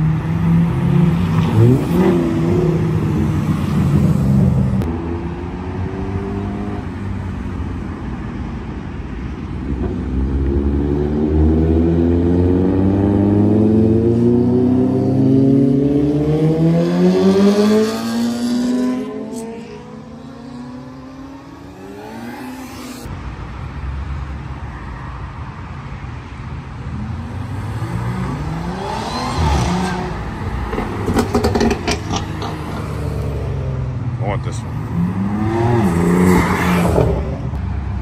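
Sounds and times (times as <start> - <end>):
cars passing with engine rumble: 0.0 - 38.0
motorcycles accelerating: 9.7 - 23.1, 27.0 - 37.6
engine revving: 10.2 - 23.1, 27.4 - 33.8, 34.8 - 37.4.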